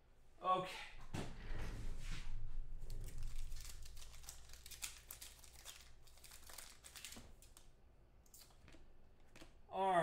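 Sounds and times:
plastic wrapper crinkling and tearing: 0:02.9 - 0:09.5.

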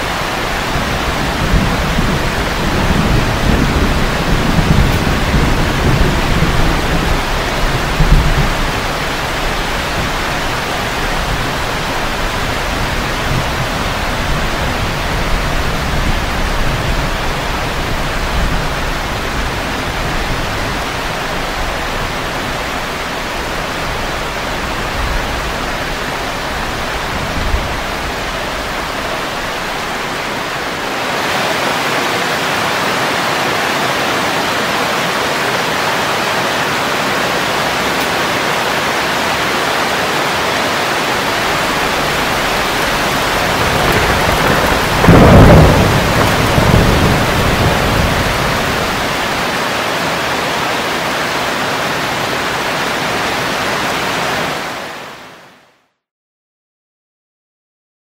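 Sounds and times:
heavy rain: 0:00.0 - 0:56.0
low thunder rumble: 0:00.4 - 0:30.9, 0:41.0 - 0:49.6.

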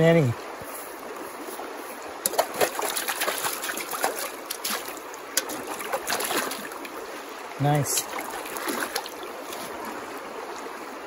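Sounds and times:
river rushing: 0:00.0 - 0:11.0
water splashing during dish washing: 0:02.3 - 0:06.8.

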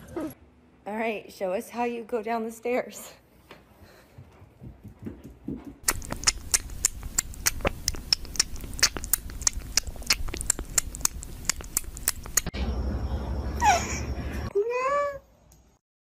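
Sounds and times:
cat sucking at a feeding bottle: 0:05.8 - 0:12.5.

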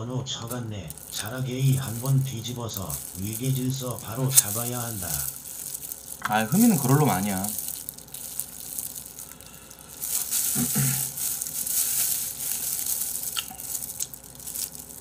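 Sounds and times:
plastic gloves crinkling: 0:00.3 - 0:15.0
wet chewing and tearing: 0:00.4 - 0:15.0.

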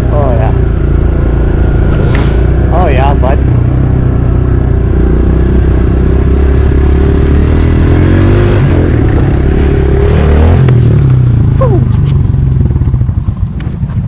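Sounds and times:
dirt bike engine running: 0:00.0 - 0:14.0.

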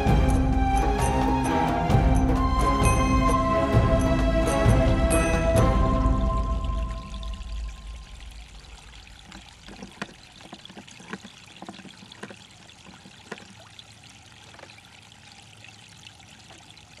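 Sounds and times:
water trickling: 0:00.0 - 0:17.0
small water plinks: 0:05.5 - 0:17.0.

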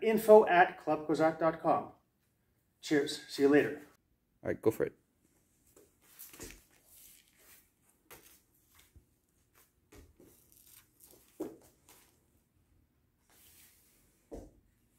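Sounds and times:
clothing rustling: 0:05.3 - 0:12.5.

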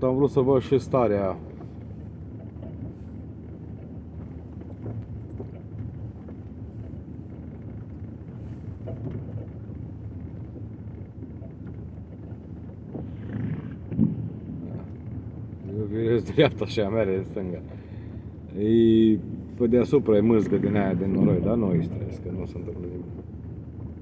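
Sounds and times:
vehicle engine at low revs: 0:00.0 - 0:24.0
tyre noise on dirt road: 0:02.4 - 0:17.6.

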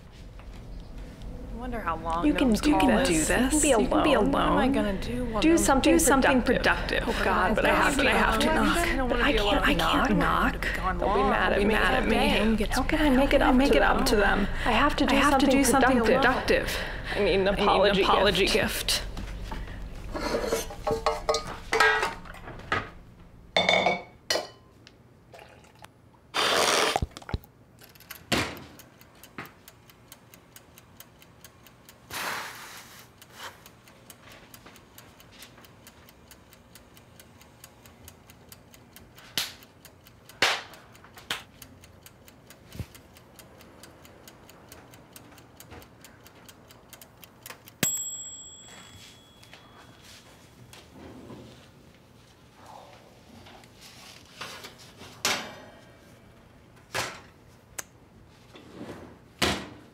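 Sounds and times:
kitchen timer ticking: 0:02.0 - 0:19.1, 0:28.7 - 0:50.0
dishes and utensils clattering: 0:20.1 - 0:22.9, 0:23.6 - 0:24.7
timer bell ding: 0:47.8 - 0:50.2.

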